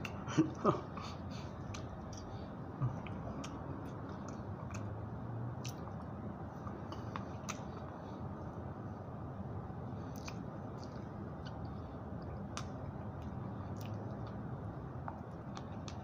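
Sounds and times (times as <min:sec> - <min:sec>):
person chewing and biting food: 0:10.1 - 0:11.7.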